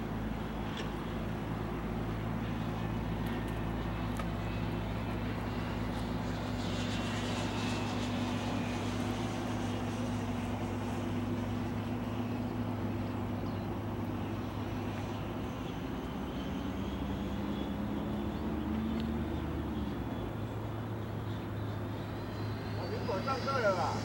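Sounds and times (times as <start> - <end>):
constant low hum: 0.0 - 24.0
model jet turbine running: 21.8 - 24.0.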